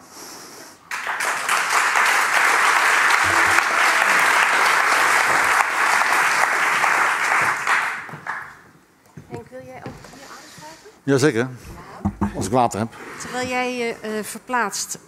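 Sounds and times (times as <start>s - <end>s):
audience applauding: 0.9s - 8.7s.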